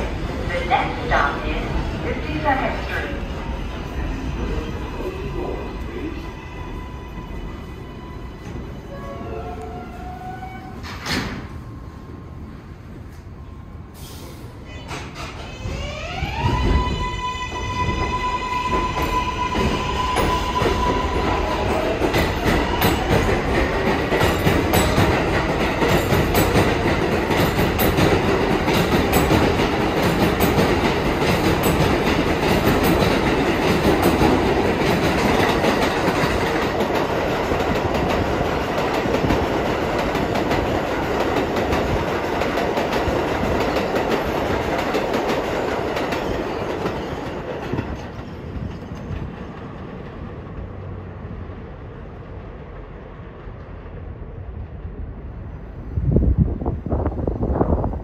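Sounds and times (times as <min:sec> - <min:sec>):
train wheels clattering on rails: 0:17.9 - 0:51.0.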